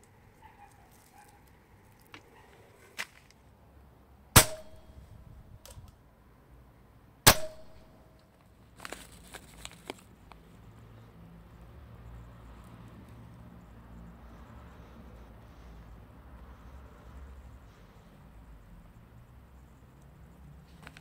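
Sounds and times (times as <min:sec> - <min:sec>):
airsoft rifle shots: 0:04.4 - 0:04.9, 0:07.3 - 0:07.9.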